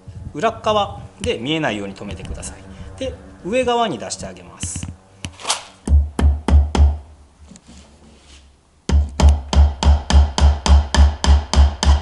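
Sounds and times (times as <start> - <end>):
hammer tapping nail into wood: 8.9 - 12.0.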